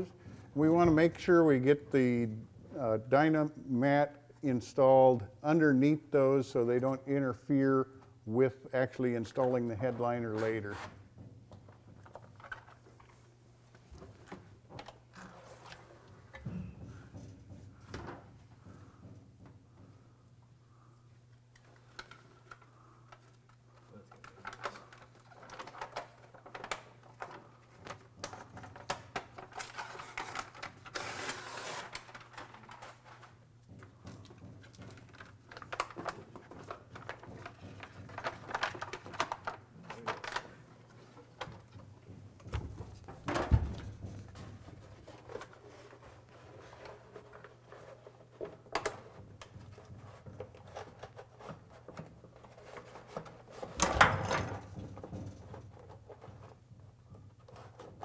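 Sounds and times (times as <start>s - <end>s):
paper and foil rustling: 24.0s - 33.4s, 34.9s - 41.4s.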